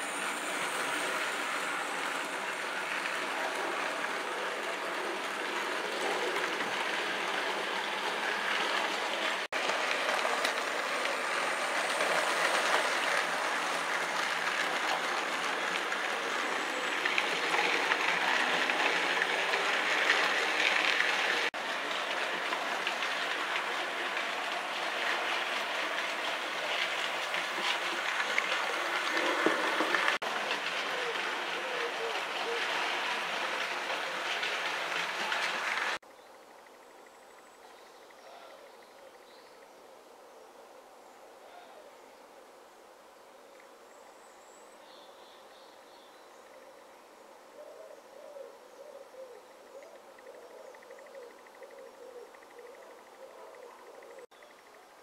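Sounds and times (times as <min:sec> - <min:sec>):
model train rolling on track: 0:00.0 - 0:39.6, 0:49.9 - 0:55.0.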